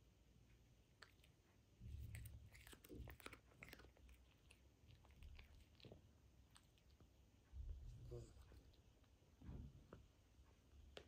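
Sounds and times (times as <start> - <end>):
cat chewing grass: 0.9 - 9.1.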